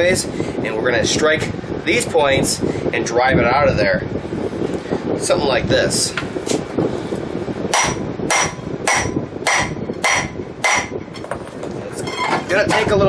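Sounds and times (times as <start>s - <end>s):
hammer striking steel bolts: 7.8s - 11.3s.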